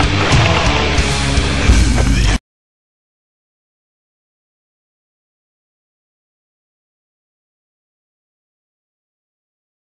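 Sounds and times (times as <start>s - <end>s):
heavy metal music: 0.0s - 2.4s.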